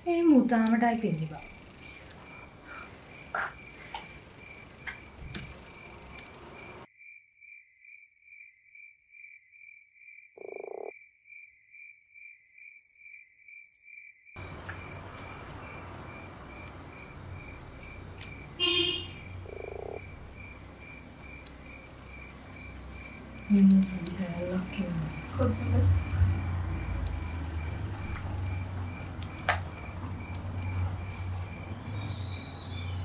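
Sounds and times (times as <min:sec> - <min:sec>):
sharp click: 0:29.2 - 0:29.6.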